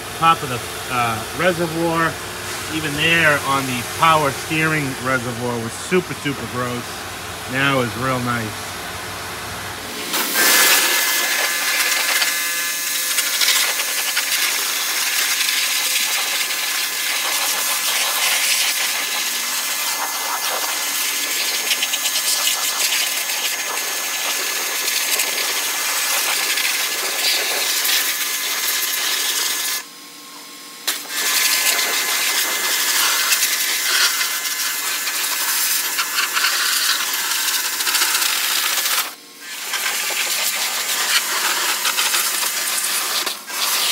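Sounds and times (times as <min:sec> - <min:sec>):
pressure washer spraying water: 0:09.9 - 0:29.8, 0:30.9 - 0:43.9.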